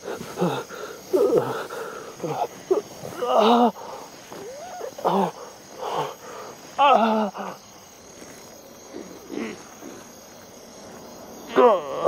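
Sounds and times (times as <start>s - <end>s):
crickets chirping: 0.0s - 12.0s
man groaning in pain: 0.4s - 3.9s, 6.8s - 7.6s, 11.5s - 12.0s.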